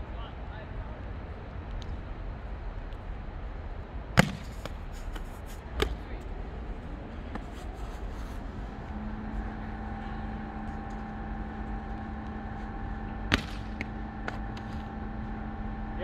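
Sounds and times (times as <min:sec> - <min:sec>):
held droning tone: 0:00.0 - 0:16.0
steady low hum: 0:00.0 - 0:16.0
sharp smack: 0:04.2 - 0:04.8, 0:13.3 - 0:14.4.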